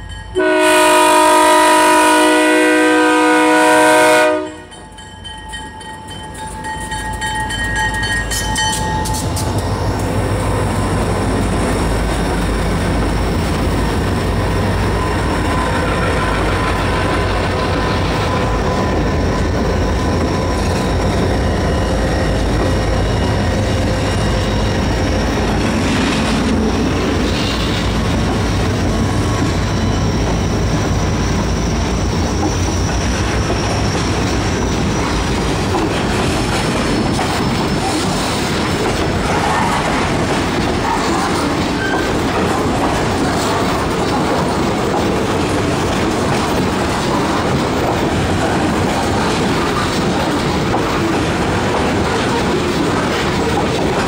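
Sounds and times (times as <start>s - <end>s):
train rumble: 0.0s - 54.0s
train wheels squealing on rails: 4.3s - 54.0s.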